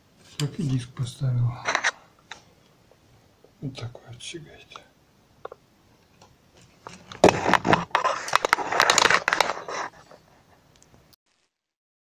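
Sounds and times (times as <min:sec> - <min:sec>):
camera handling noise: 0:06.9 - 0:10.1.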